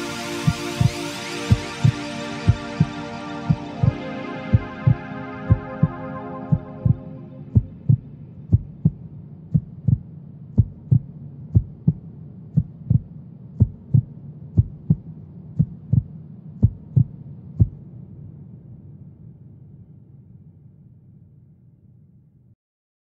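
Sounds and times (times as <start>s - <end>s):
held music chord: 0.0s - 8.4s
low steady hum: 0.0s - 22.5s
heartbeat thumps: 0.4s - 17.9s.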